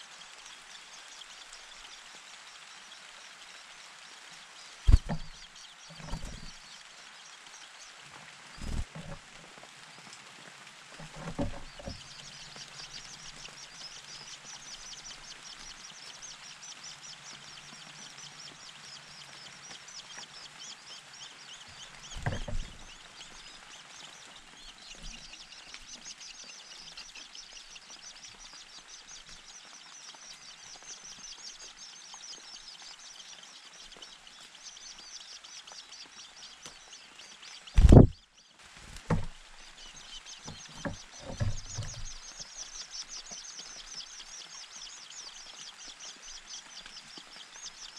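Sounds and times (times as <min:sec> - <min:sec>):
dull thump: 0:04.9 - 0:05.4, 0:22.2 - 0:22.8, 0:37.8 - 0:38.2, 0:39.0 - 0:39.4.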